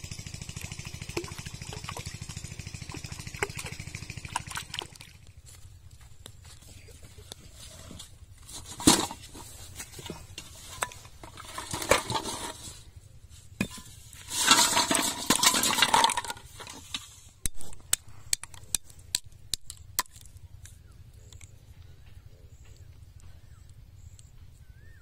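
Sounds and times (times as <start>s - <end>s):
plastic bottles rattling in pot: 7.6s - 12.8s, 13.6s - 17.2s
metal pot knocking on ground: 13.6s - 16.4s.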